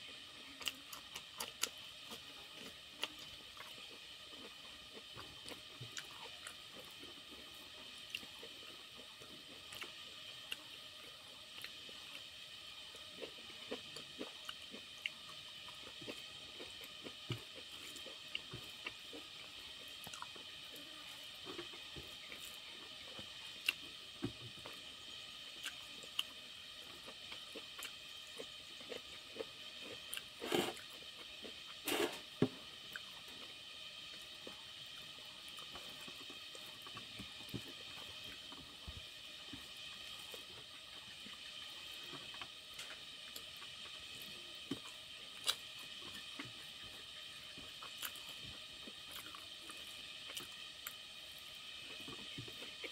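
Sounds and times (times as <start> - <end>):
scrapes on plate: 30.4 - 30.8, 31.9 - 32.2.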